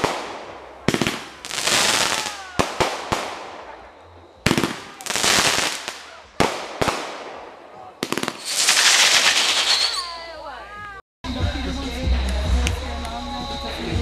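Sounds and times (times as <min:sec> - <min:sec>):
crackling hiss of sparks: 0:00.0 - 0:03.5, 0:08.2 - 0:10.1
fireworks bangs: 0:00.0 - 0:10.2.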